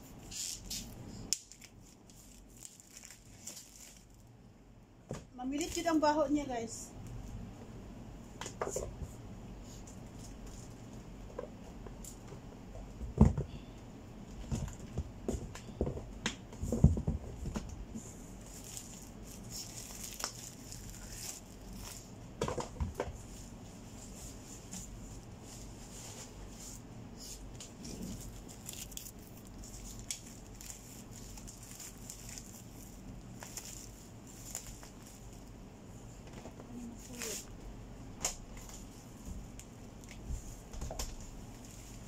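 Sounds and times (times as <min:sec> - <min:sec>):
plastic wrapping rustling: 0:00.2 - 0:04.3, 0:18.0 - 0:22.2, 0:23.2 - 0:35.6, 0:36.7 - 0:37.5
knocks and thuds in cardboard box: 0:13.0 - 0:13.6, 0:14.4 - 0:17.8.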